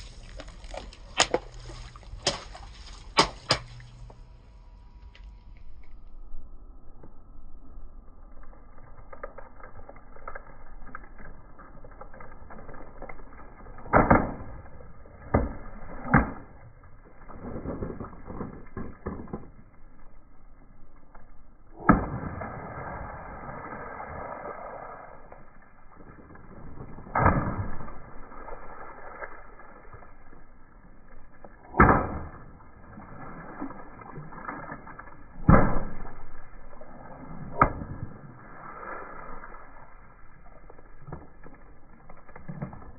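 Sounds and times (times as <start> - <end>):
water balloons popping: 0.0 - 4.2, 9.0 - 19.8, 21.7 - 42.9
water splashing: 0.0 - 4.3, 21.8 - 42.9.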